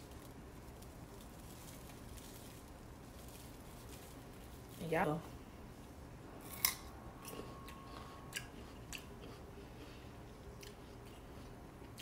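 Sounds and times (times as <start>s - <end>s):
crunchy chewing: 6.5s - 12.0s.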